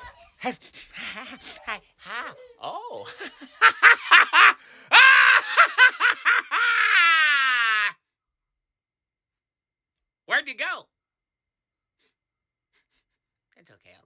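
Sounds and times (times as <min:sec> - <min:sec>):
person laughing and shrieking: 0:00.0 - 0:08.0
long high-pitched yell: 0:06.4 - 0:08.0.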